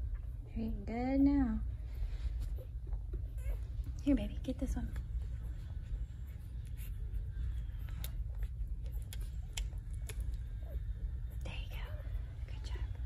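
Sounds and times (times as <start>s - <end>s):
steady low hum: 0.0s - 13.0s
fur and blanket rustling: 1.7s - 2.9s
puppies sucking clicks: 4.9s - 10.8s.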